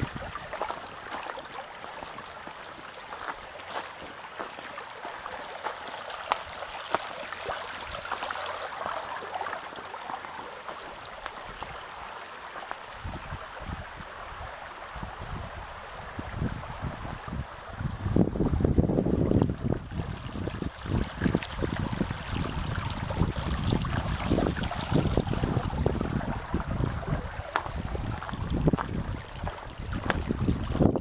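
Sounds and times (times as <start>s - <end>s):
wind buffeting microphone: 0.0s - 0.7s, 13.0s - 31.0s
water babbling in a channel: 0.0s - 31.0s.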